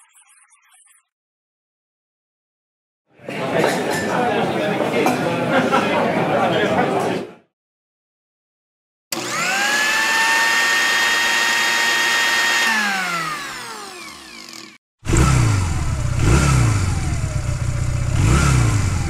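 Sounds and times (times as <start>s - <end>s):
electric blender whining: 9.1s - 19.0s
motorcycle engine revving: 9.1s - 19.0s.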